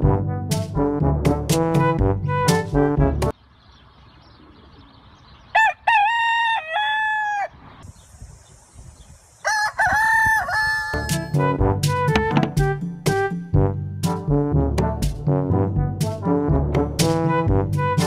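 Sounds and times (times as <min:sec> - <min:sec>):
background music: 0:00.0 - 0:03.3, 0:10.9 - 0:18.0
rooster crowing: 0:05.5 - 0:07.6, 0:09.4 - 0:11.4.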